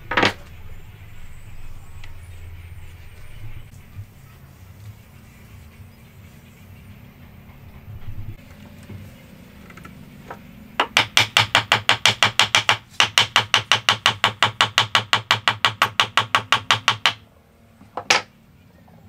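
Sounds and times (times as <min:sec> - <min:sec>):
rapid knocks on wooden joint: 0:10.8 - 0:17.2.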